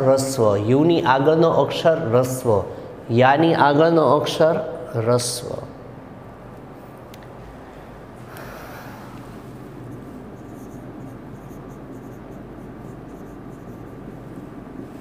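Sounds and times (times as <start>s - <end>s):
low room noise: 0.0s - 15.0s
marker scratching on whiteboard: 9.6s - 15.0s.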